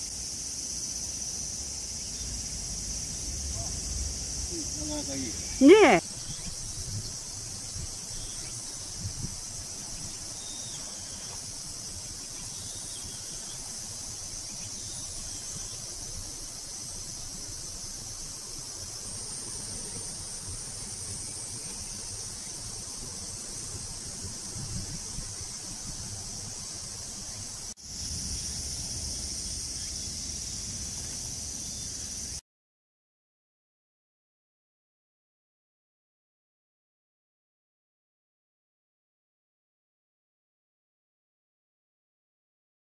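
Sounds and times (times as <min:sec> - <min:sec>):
high-pitched insect chorus: 0:00.0 - 0:32.4.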